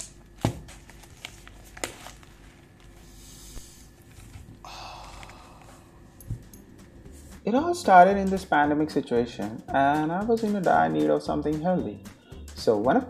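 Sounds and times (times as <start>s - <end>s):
paper rustling: 0.3s - 5.6s.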